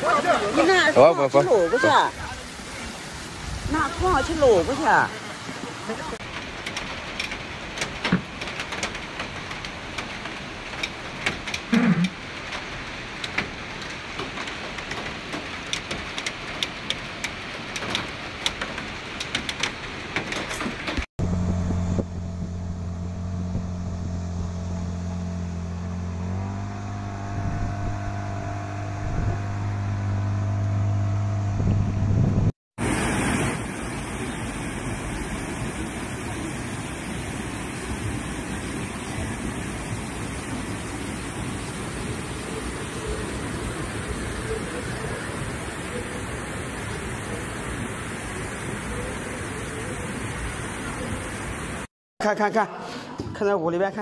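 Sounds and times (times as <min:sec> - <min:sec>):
rushing river with crackles: 0:00.0 - 0:21.1, 0:32.8 - 0:51.9
water rushing over a weir: 0:00.0 - 0:21.1, 0:32.8 - 0:51.9
boat engine running: 0:21.2 - 0:32.5, 0:33.8 - 0:51.8.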